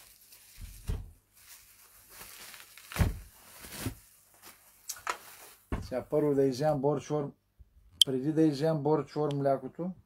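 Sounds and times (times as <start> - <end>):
soft thumps and knocks: 5.7 - 6.0.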